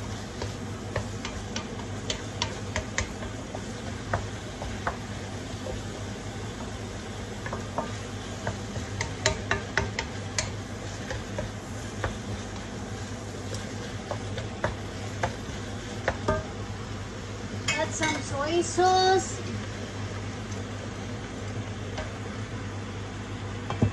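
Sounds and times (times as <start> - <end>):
spatula tapping pan: 0.0 - 16.6
frying sizzle: 0.0 - 23.9
spatula scraping meat in wok: 6.6 - 16.4.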